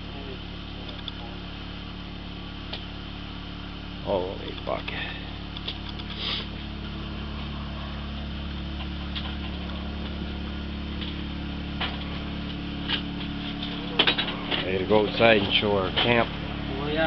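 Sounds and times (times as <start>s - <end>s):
low electrical hum: 0.0s - 17.0s
short hiss: 6.0s - 6.6s.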